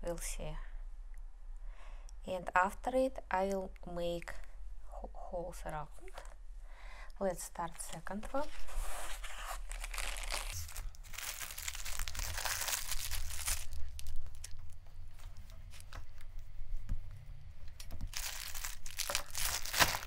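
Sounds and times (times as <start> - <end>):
plastic bag crinkling: 8.6 - 16.0, 18.0 - 20.0.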